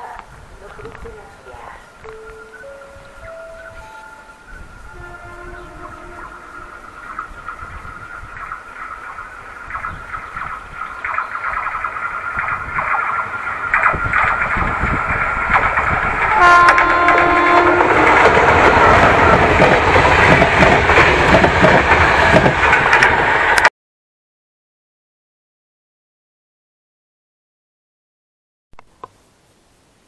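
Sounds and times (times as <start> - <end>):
train wheel and rail clatter: 0.0 - 23.7
high ringing from rails: 2.0 - 9.4
locomotive horn blast: 4.8 - 7.4, 16.3 - 18.8.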